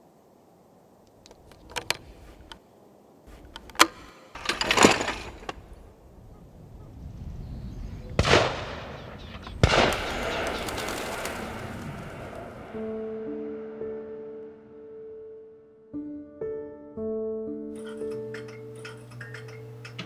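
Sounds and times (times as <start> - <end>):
shotgun shots: 8.2 - 11.6.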